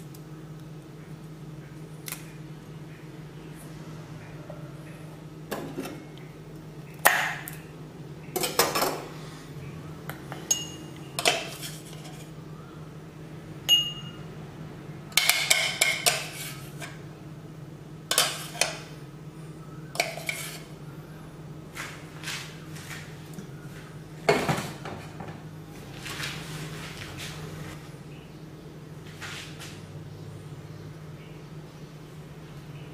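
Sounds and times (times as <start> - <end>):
steady low hum: 0.0 - 32.9.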